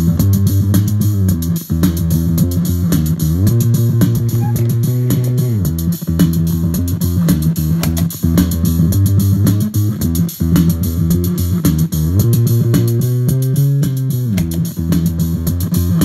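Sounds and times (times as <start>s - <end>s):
fuzz electric bass riff: 0.0s - 16.0s.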